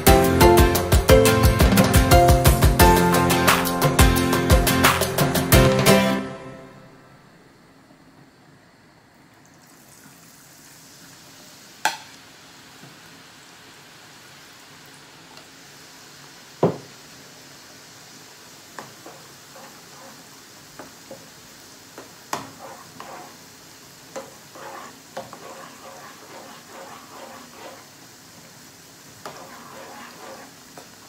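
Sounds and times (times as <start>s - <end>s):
batter sizzling in hot oil: 9.9s - 31.0s
spoon scraping a pan: 18.8s - 20.3s, 22.3s - 23.5s, 24.1s - 27.9s, 29.2s - 30.9s.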